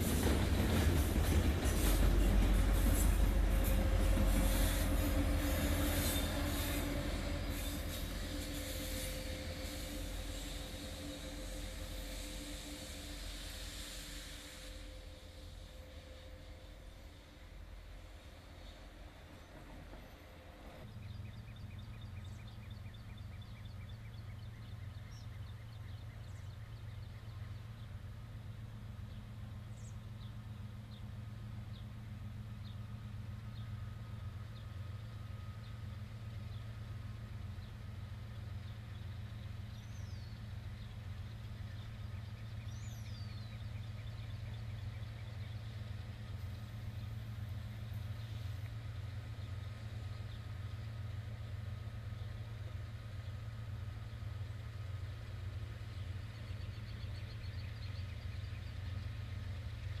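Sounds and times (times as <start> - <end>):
diesel locomotive rumble: 0.0 - 60.0.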